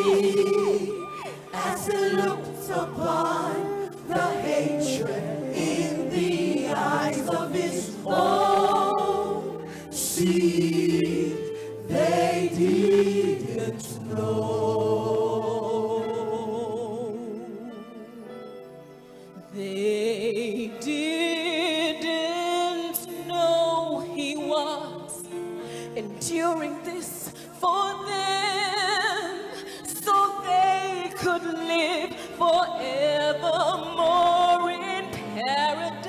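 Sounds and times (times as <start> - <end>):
choir singing: 0.0 - 17.8
woman singing gospel: 0.0 - 17.9, 26.0 - 36.0.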